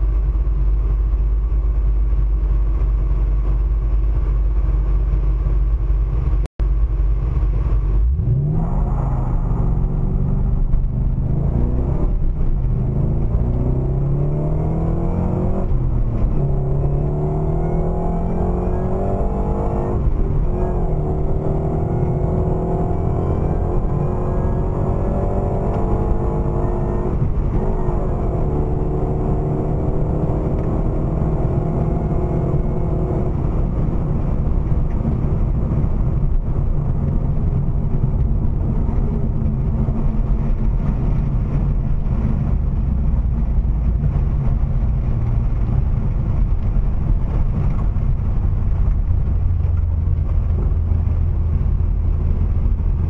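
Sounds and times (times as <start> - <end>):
car engine at full throttle: 0.0 - 53.0
road and wind noise drone: 0.0 - 53.0.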